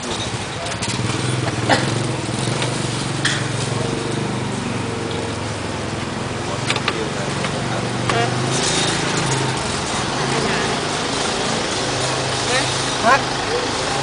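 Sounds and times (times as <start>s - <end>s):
small engine running: 0.0s - 14.0s.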